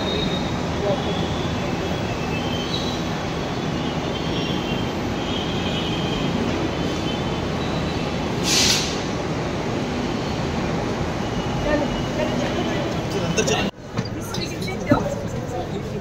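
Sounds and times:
train running noise: 0:00.0 - 0:16.0
loud hiss of air: 0:08.3 - 0:09.3.

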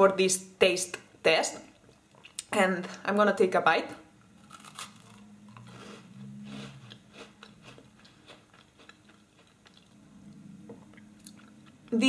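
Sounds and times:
biscuit crunching: 0:04.4 - 0:10.0.

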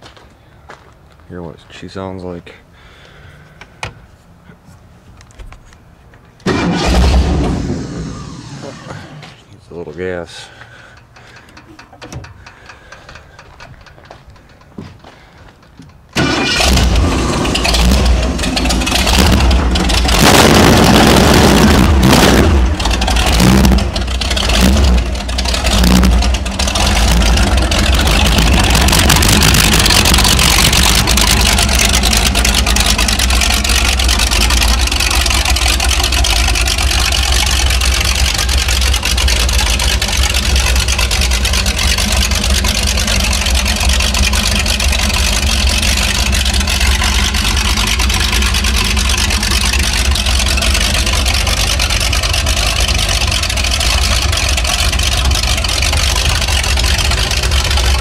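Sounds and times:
boat engine revving and idling: 0:16.2 - 0:58.0.

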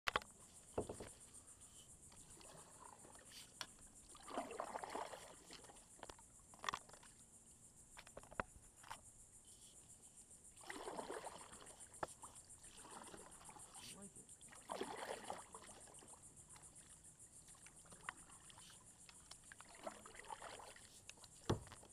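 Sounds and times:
paddles dipping into water: 0:00.1 - 0:09.0, 0:10.5 - 0:21.9
paddle strokes swishing: 0:00.4 - 0:05.9, 0:10.6 - 0:16.0, 0:16.6 - 0:21.9.

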